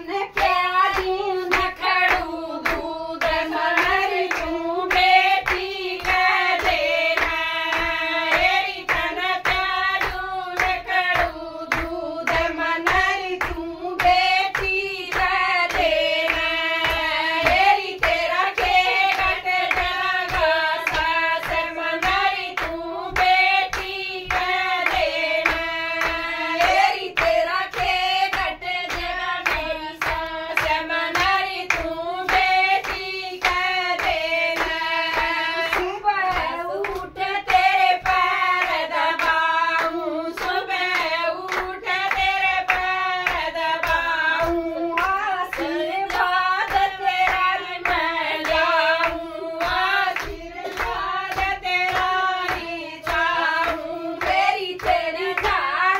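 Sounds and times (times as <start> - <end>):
hand claps: 0.0 - 55.9
women singing together: 0.0 - 55.9.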